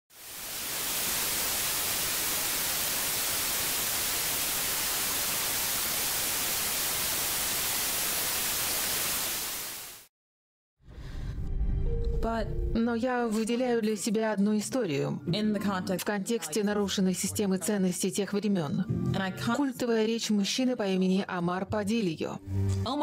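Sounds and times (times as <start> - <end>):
television static hiss: 0.2 - 10.0.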